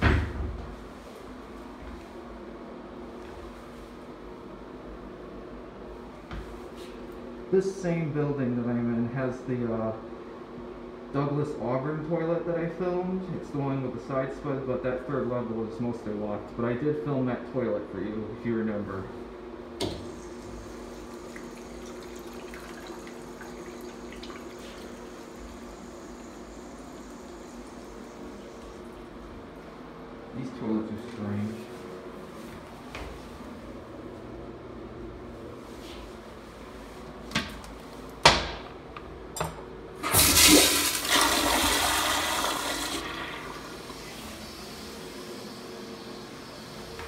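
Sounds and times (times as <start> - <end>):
steady hum: 0.0 - 47.0
urinal flushing: 19.9 - 29.4, 40.0 - 47.0
water splashing and draining: 20.3 - 27.9, 40.0 - 44.3.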